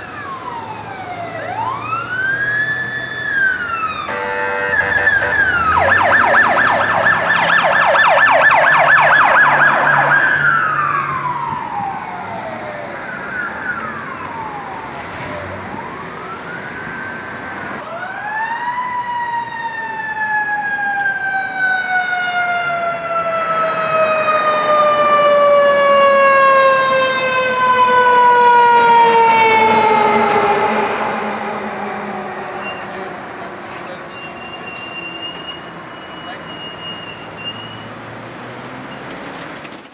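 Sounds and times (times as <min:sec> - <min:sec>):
electronic siren yelp: 0:00.0 - 0:33.1
siren wail: 0:00.0 - 0:38.0
mechanical siren winding down: 0:04.8 - 0:33.0.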